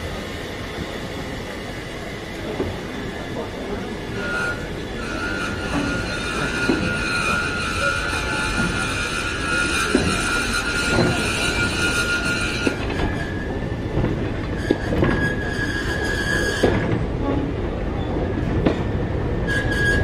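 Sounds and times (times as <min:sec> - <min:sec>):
high wheel squeal: 0:04.0 - 0:13.8, 0:14.4 - 0:17.0, 0:19.4 - 0:20.0.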